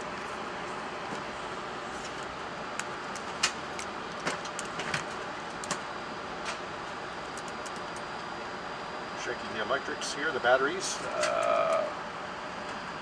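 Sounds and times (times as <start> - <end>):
steady cockpit hiss: 5.2 - 13.0.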